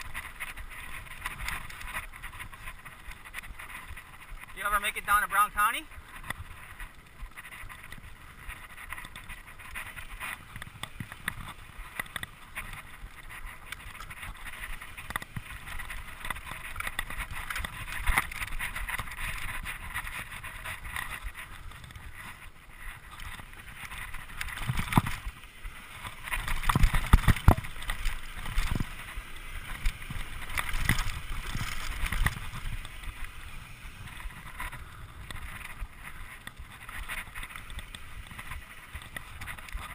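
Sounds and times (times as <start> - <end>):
bike rattling over bumps: 0.0 - 39.9
bike tyres rolling on dirt: 0.0 - 39.9
wind on microphone: 6.0 - 39.9.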